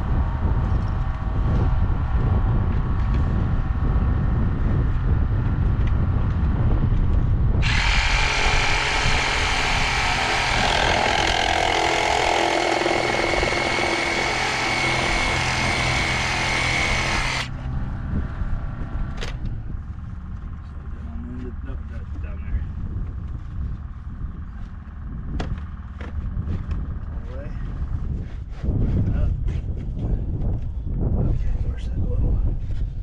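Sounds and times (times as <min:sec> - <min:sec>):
low engine rumble: 0:00.0 - 0:33.0
power tool whining: 0:07.6 - 0:17.6.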